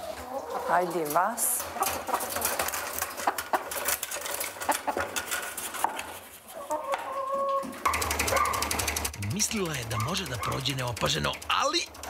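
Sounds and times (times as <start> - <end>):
hens clucking: 0.0 - 12.0
feed tapping metal trough: 7.9 - 12.0.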